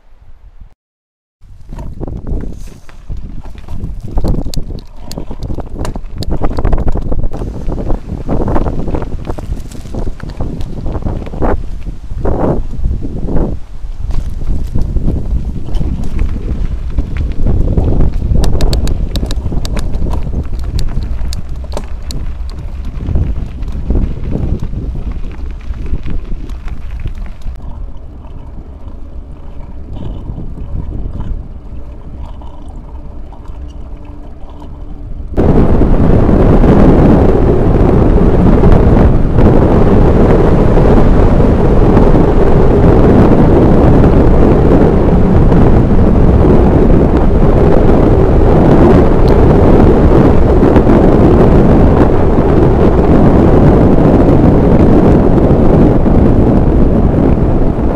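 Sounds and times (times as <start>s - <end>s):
wind rushing over microphone: 1.4s - 57.9s.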